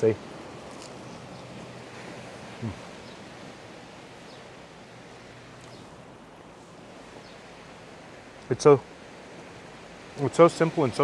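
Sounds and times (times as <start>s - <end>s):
open-air ambience hiss: 0.0s - 11.0s
person humming: 2.6s - 2.8s.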